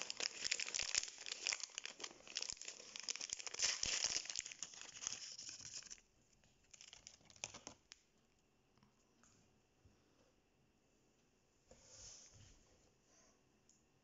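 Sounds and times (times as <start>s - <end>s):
plastic wrapper crinkling: 0.0s - 6.0s, 6.6s - 8.0s.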